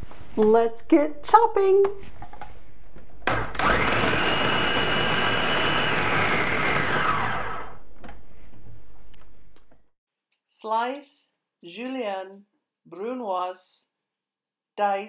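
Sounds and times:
food processor motor chopping: 0:03.2 - 0:07.9.

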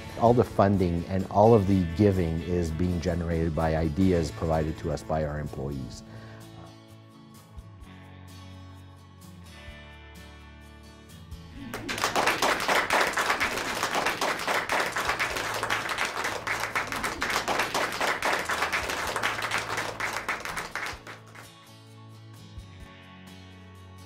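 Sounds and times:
soft background music: 0:00.0 - 0:24.0
people clapping: 0:11.6 - 0:21.6.

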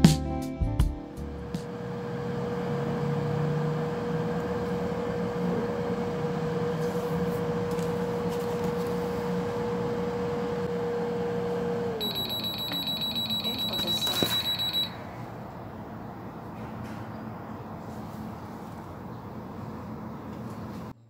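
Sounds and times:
air fryer fan whirring: 0:01.1 - 0:16.6
steady humming tone: 0:04.6 - 0:16.5.

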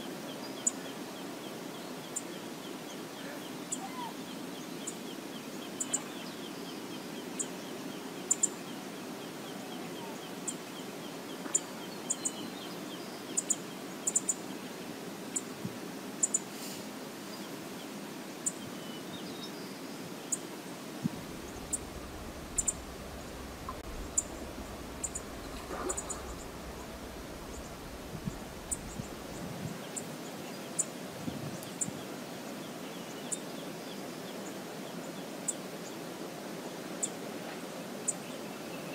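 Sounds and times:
river water rushing: 0:20.5 - 0:30.2
low rumble: 0:21.0 - 0:29.7
bird chirps: 0:21.2 - 0:29.5.

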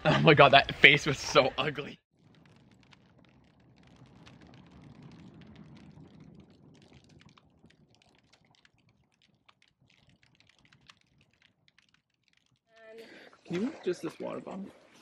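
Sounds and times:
campfire crackling: 0:00.7 - 0:15.0
low rumble of flame: 0:02.1 - 0:13.4.

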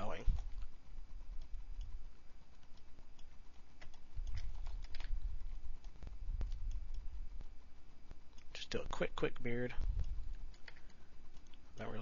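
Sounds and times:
mouse and keyboard clicks: 0:02.5 - 0:07.1.

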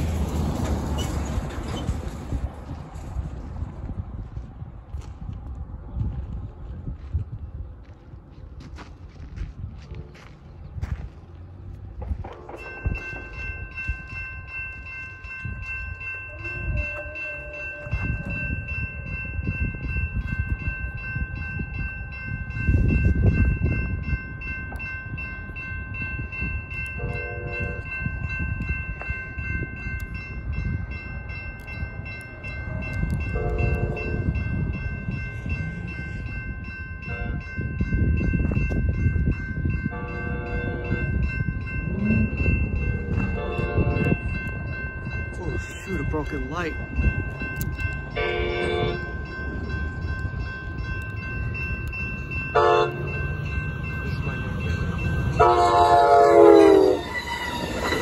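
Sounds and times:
railroad crossing bells ringing: 0:00.0 - 0:05.2, 0:07.8 - 0:58.0
low train rumble: 0:00.0 - 0:58.0
train horn blasts: 0:16.2 - 0:18.4, 0:27.0 - 0:27.9, 0:33.3 - 0:34.2, 0:40.0 - 0:41.1, 0:42.9 - 0:44.2, 0:48.2 - 0:49.0, 0:52.6 - 0:53.2, 0:55.1 - 0:57.2.

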